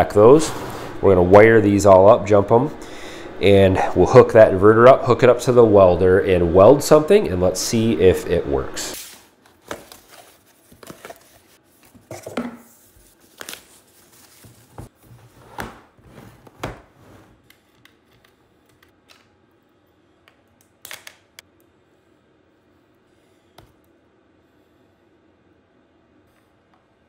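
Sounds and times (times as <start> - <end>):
cardboard rustling and scraping: 9.0 - 17.4.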